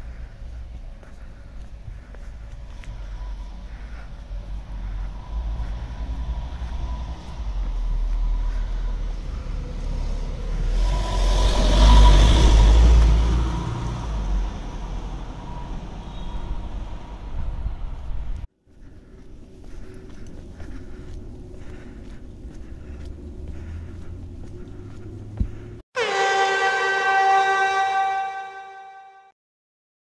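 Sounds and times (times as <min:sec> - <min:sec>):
steady low rumble: 0:00.0 - 0:11.6, 0:12.9 - 0:25.8
car passing by: 0:02.7 - 0:18.4.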